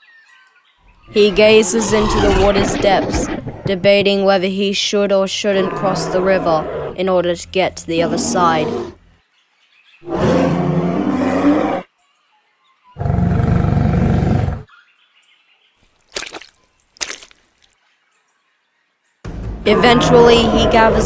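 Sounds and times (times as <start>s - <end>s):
creature roaring: 1.2s - 3.7s, 5.4s - 7.0s, 7.9s - 9.0s, 10.0s - 11.9s, 13.0s - 14.7s, 19.7s - 21.0s
feet splashing in shallow water: 15.9s - 17.7s.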